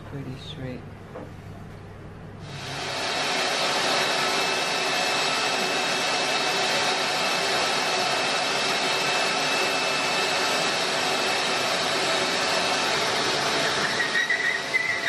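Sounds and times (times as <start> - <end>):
shop vacuum running: 2.4 - 15.0.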